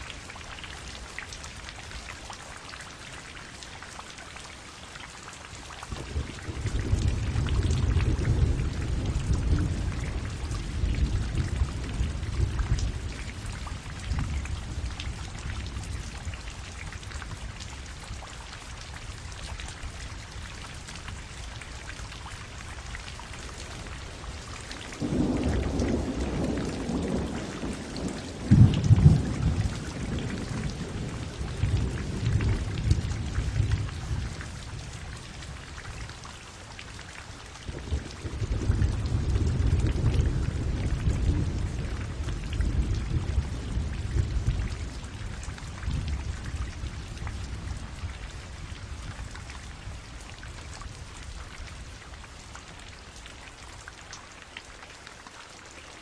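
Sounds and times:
steady rain: 0.0 - 56.0
rolling thunder: 5.9 - 15.6, 24.9 - 34.4, 37.7 - 48.0.

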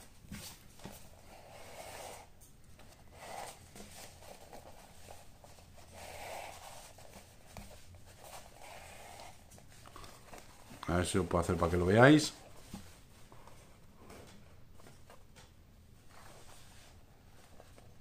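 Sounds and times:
lace rubbing through leather pouch: 3.1 - 10.6.

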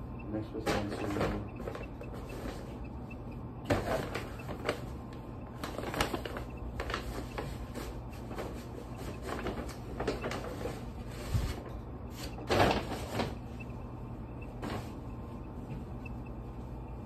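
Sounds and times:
paper bag rustling and crinkling: 3.7 - 5.0, 5.6 - 13.6.

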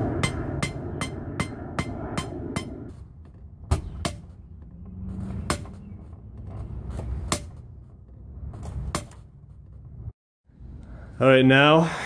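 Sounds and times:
sledgehammer striking steel rod: 0.0 - 3.0, 3.7 - 4.4, 5.4 - 5.8, 7.2 - 7.6.

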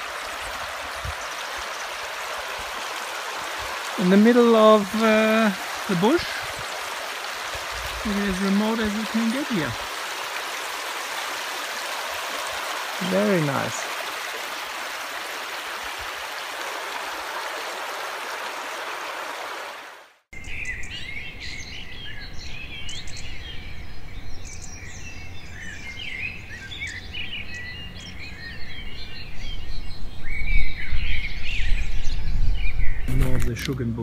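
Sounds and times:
birds chirping and trilling: 0.0 - 14.2, 20.4 - 34.0
creek water running: 0.0 - 20.3.

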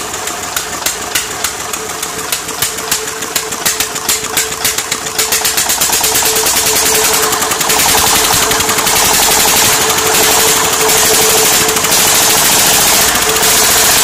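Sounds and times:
diesel engine chugging: 0.0 - 14.0.

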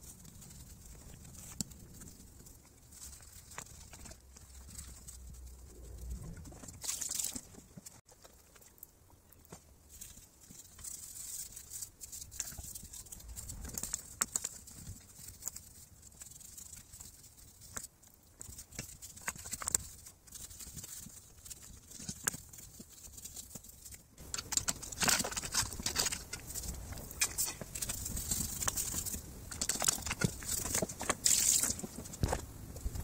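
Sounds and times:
bristle brush scrubbing metal: 24.2 - 31.9.

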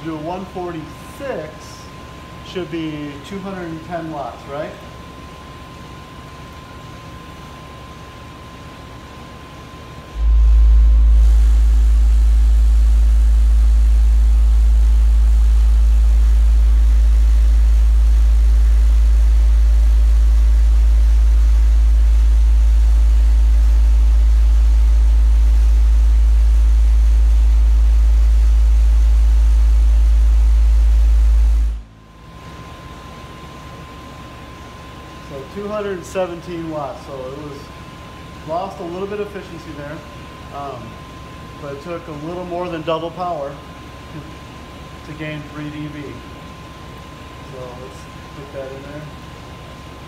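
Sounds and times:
subwoofer low bass tone: 9.6 - 33.5.

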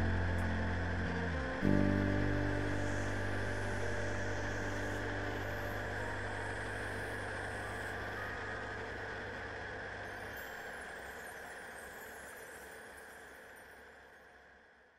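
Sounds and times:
aircraft engine droning: 0.0 - 10.3.

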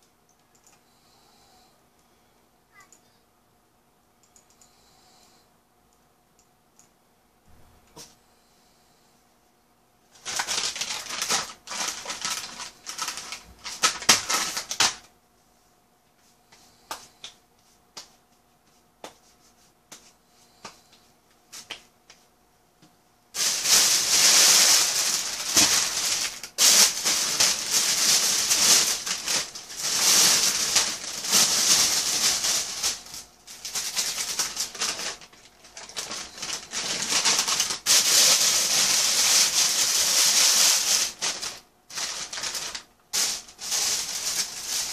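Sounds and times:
plastic bag rustling and crinkling: 10.1 - 15.0, 23.4 - 44.9.

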